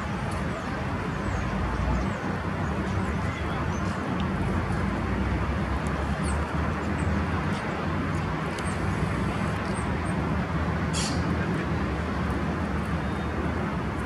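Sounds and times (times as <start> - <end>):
distant city traffic rumble: 0.0 - 14.0
short high hiss: 10.9 - 11.3.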